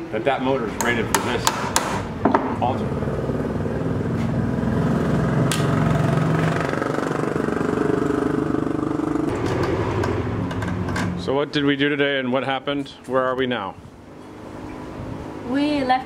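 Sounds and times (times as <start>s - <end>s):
engine running steadily: 2.2s - 12.0s.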